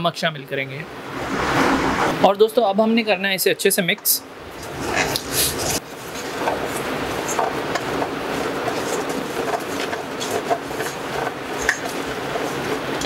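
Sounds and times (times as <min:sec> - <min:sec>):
wooden spatula scraping pan: 0:04.6 - 0:13.0.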